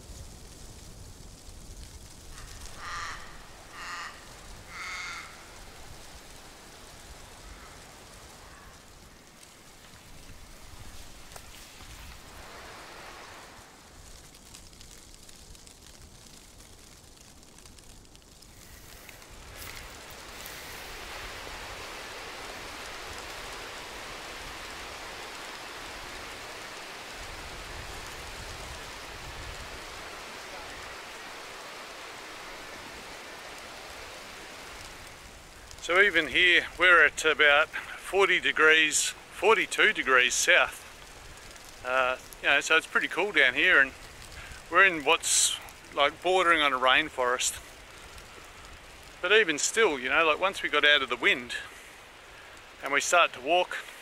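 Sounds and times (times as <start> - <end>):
forest ambience hiss: 0.0 - 54.0
bird calling: 2.3 - 5.7.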